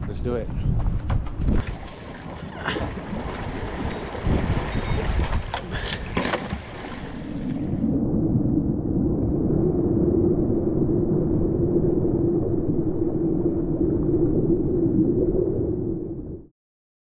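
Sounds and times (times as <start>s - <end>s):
waves washing over rocks: 1.6s - 7.7s
dive float splashing into sea: 1.6s - 7.9s.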